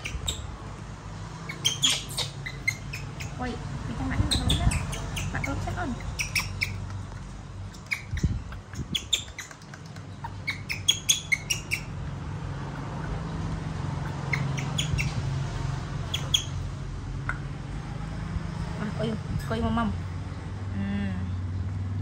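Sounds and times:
baby monkey squeaking: 0.0s - 0.6s, 1.4s - 12.1s, 12.8s - 16.7s.

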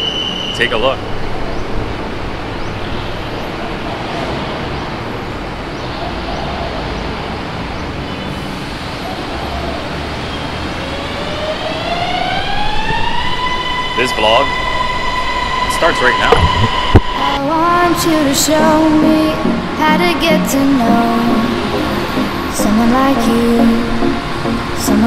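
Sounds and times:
passing cars: 0.0s - 25.0s
rising pitched tone: 11.2s - 17.5s.

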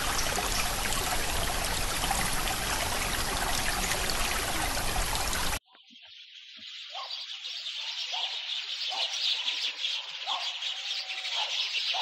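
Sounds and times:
running water rushing: 0.0s - 5.6s.

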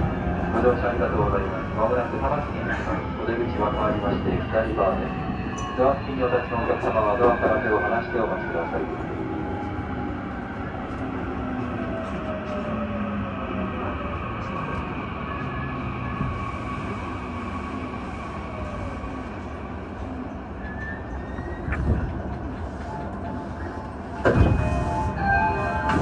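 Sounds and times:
train rumbling while braking: 0.0s - 26.0s.

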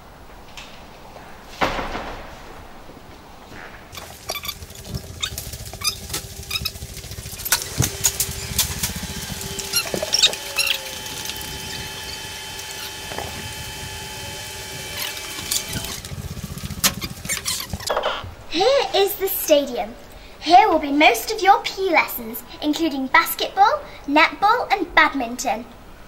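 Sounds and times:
steady multi-tone hum: 0.0s - 26.0s
low rumble: 2.2s - 18.5s.

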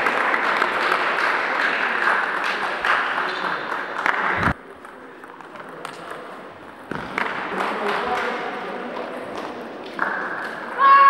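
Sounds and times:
spectators applauding: 0.0s - 4.5s.

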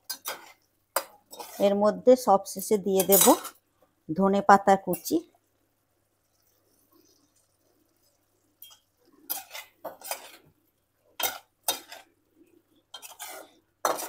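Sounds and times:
utensil stirring and scraping a pan: 0.0s - 3.7s, 6.1s - 14.0s.

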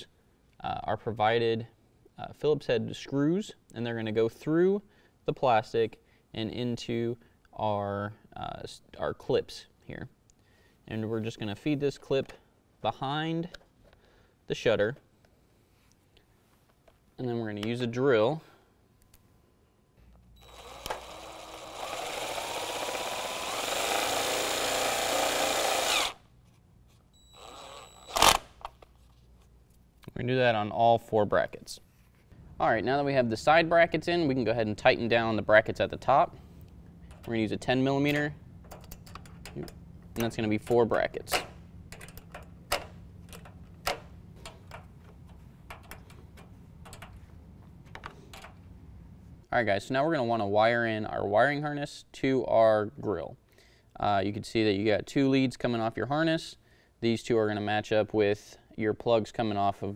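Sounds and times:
cordless drill driving screw: 20.4s - 26.2s, 27.3s - 28.6s
steady low hum: 31.4s - 49.6s
wrench clicking on bolts: 38.0s - 40.7s, 41.3s - 47.2s.

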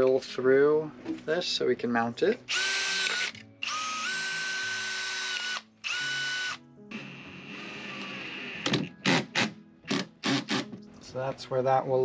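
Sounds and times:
power drill whining: 2.5s - 10.7s.

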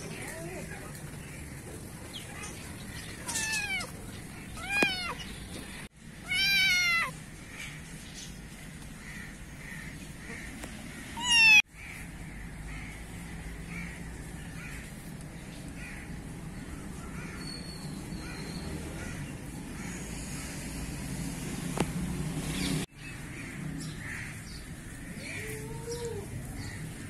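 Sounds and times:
kitten meowing: 3.2s - 5.2s, 6.2s - 7.2s, 11.2s - 11.6s.

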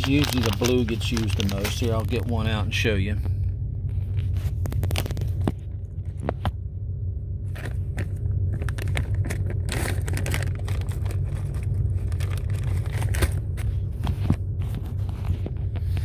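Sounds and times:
plastic bag rustling: 0.0s - 2.8s, 7.5s - 16.0s
steady low hum: 0.0s - 16.0s.

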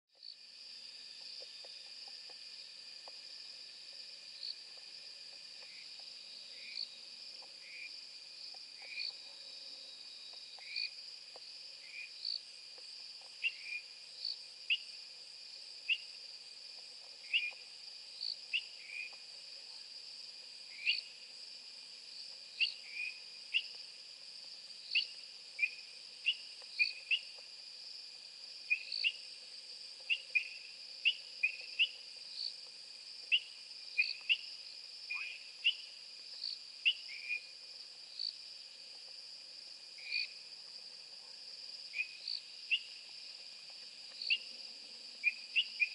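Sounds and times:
crickets trilling: 0.2s - 45.9s
short insect chirping calls: 0.2s - 45.9s.

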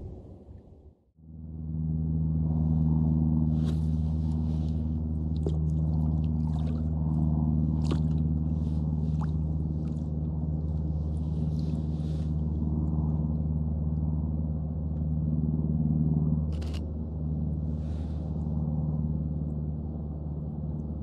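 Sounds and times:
steady low hum: 0.0s - 21.0s
kayak paddle splashing water: 4.6s - 10.2s.

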